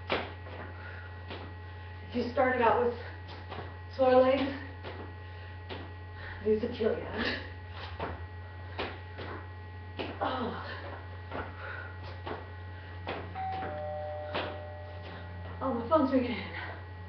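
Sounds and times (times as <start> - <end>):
low electrical hum: 0.0 - 17.0
feet thumping on garage floor: 3.0 - 6.4, 7.7 - 15.6
mobile phone ringing: 13.4 - 15.4.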